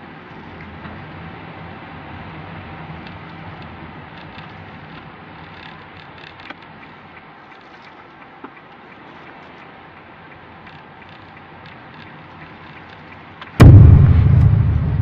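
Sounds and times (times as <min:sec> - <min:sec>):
faint clicks and ticks: 0:03.0 - 0:13.6.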